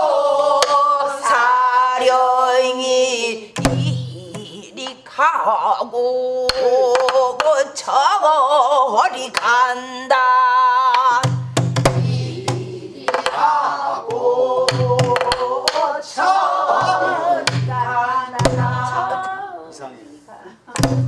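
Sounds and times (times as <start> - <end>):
woman singing with vibrato: 0.0 - 11.3, 14.2 - 20.4
deep drum booms: 11.2 - 12.9, 16.8 - 19.0.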